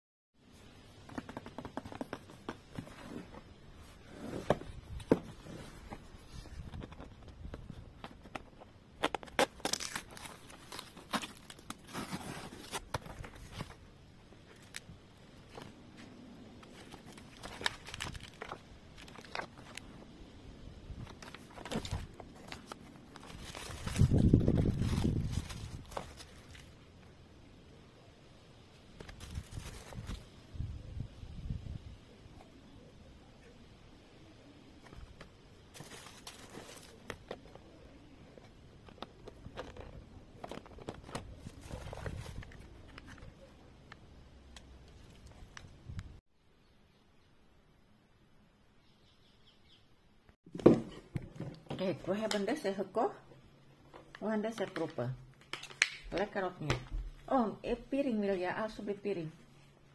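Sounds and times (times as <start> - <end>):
paper cards rustling and tapping: 1.0 - 3.0, 5.9 - 11.5, 54.0 - 57.1
paper and cardboard rustling: 1.0 - 20.0, 21.0 - 26.8, 29.0 - 30.3, 34.8 - 43.5.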